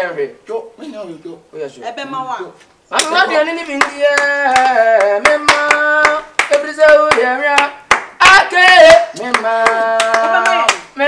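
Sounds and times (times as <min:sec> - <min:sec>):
person singing: 0:03.0 - 0:11.0
sharp claps: 0:03.8 - 0:11.0.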